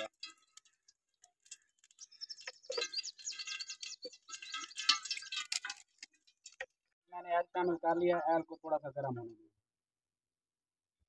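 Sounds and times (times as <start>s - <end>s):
birds chirping: 1.9s - 5.4s.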